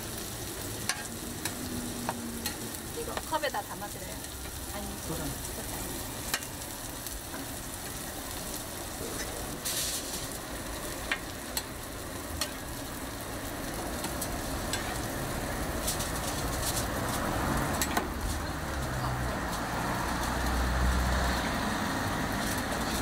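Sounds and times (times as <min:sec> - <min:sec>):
food sizzling in oil: 0:00.0 - 0:23.0
metal spatula scraping griddle: 0:09.1 - 0:10.4, 0:14.0 - 0:15.1, 0:15.7 - 0:18.5.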